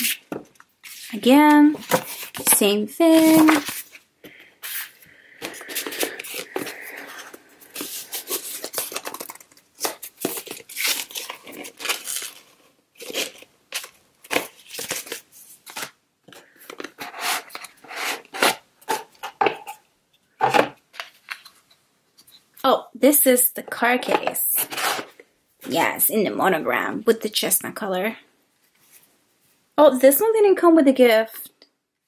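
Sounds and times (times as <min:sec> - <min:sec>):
paper packaging rustling: 0:00.0 - 0:19.4.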